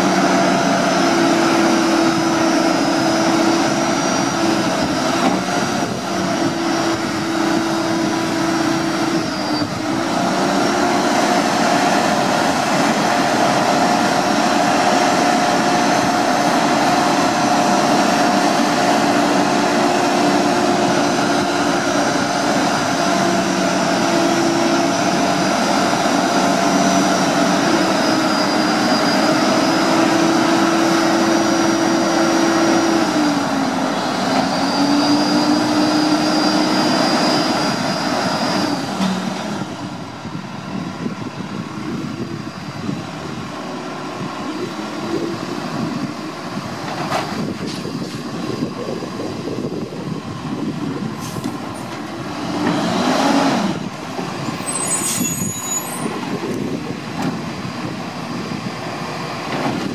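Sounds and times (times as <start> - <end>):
garbage truck idling: 0.0 - 55.0, 56.0 - 59.9
hydraulic pump whine: 0.0 - 59.9.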